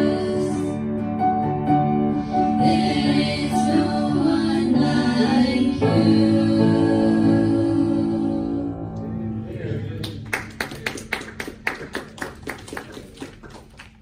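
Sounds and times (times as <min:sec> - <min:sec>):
duet singing with acoustic guitar: 0:00.0 - 0:01.1, 0:02.2 - 0:09.0
people applauding: 0:09.9 - 0:14.0.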